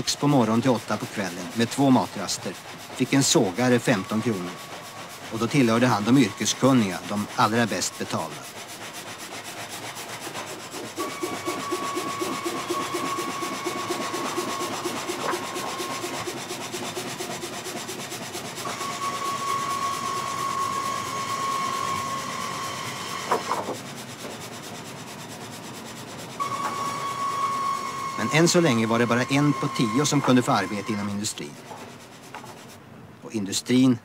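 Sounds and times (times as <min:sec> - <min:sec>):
saw blades rasping through wood: 0:00.0 - 0:32.8
high whining tone: 0:03.1 - 0:08.0, 0:18.6 - 0:23.6, 0:26.4 - 0:31.2.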